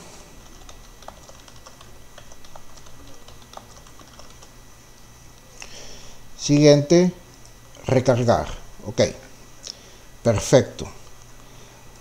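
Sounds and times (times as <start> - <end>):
keyboard typing clicks: 0.4 - 4.5.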